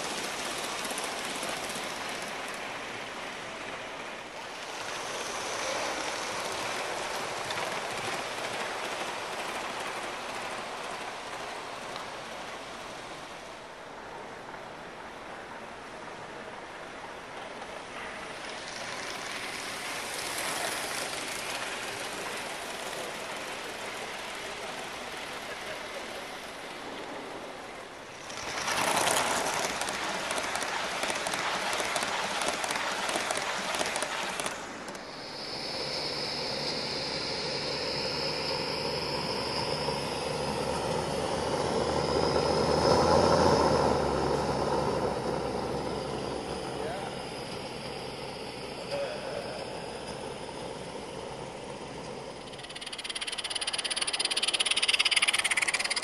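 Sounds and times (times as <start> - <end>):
model steam train passing: 0.0 - 56.0.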